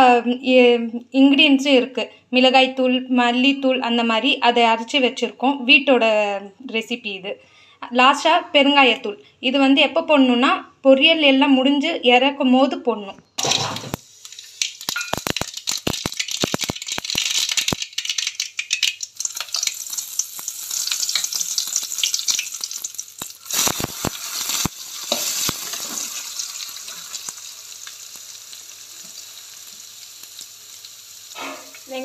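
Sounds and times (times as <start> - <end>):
mustard seeds popping in oil: 13.4 - 28.0
onions sizzling in oil: 13.4 - 32.0
metal spatula stirring: 23.5 - 26.2, 31.4 - 31.9.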